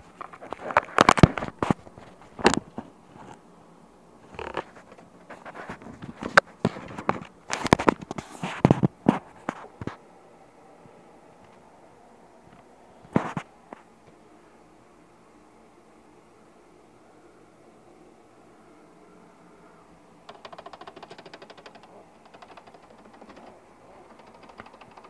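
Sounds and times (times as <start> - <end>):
claws scratching on microphone: 0.0 - 3.4, 4.2 - 10.0, 13.1 - 13.5, 20.3 - 25.0.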